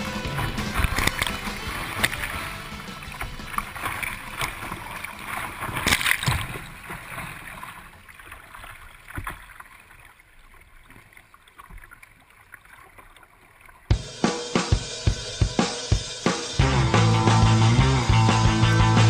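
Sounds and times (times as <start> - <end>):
river water rushing and splashing: 0.0 - 13.9.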